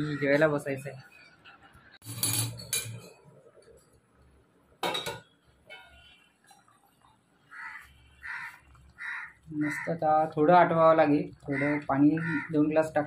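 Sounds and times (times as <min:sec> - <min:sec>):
metal lid clinking off pot: 0:04.8 - 0:05.3
crow cawing: 0:07.5 - 0:10.0, 0:11.5 - 0:12.7.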